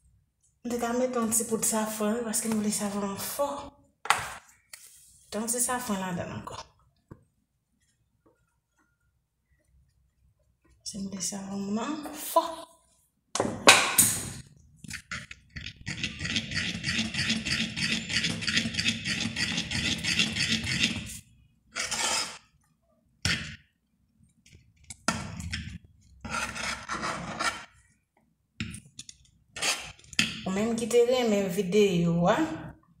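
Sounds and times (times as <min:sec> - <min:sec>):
metal utensil scraping metal pan: 0:15.6 - 0:22.5.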